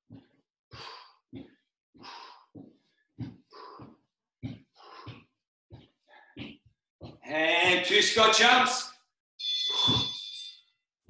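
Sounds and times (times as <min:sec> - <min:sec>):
man panting: 0:00.1 - 0:05.3.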